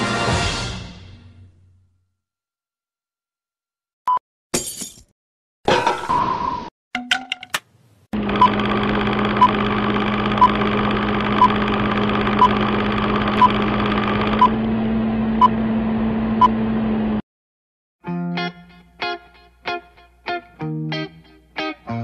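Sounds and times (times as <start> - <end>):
film projector whirring: 8.2 - 15.2.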